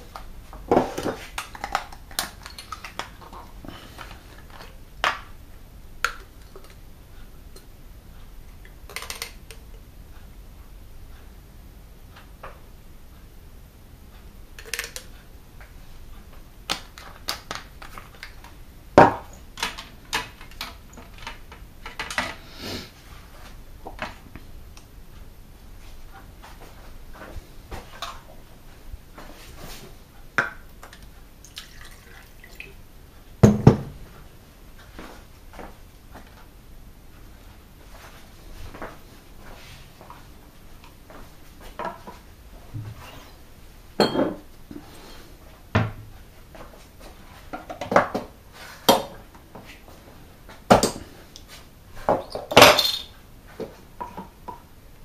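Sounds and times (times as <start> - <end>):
plastic boxes and bottles handled: 0.1 - 5.3.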